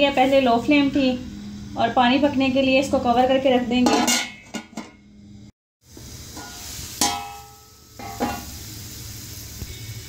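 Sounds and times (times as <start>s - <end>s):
lid clanking: 3.8s - 5.0s, 6.4s - 8.5s
metal pot lid clinking: 3.8s - 5.0s, 6.4s - 8.5s
water boiling hiss: 5.8s - 10.0s.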